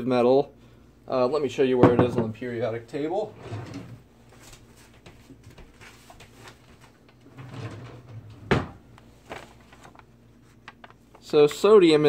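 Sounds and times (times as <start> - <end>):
paper rustling: 4.3 - 7.0, 9.0 - 11.9.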